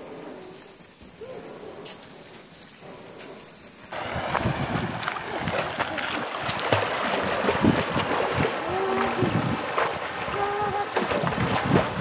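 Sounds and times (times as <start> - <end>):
people wading in water: 3.9 - 12.0
stream splashing over rocks: 3.9 - 12.0.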